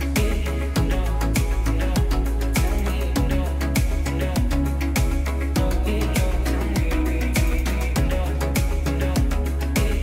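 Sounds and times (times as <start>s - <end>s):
background music with beat: 0.0s - 10.0s
deep kick drum: 0.0s - 10.0s.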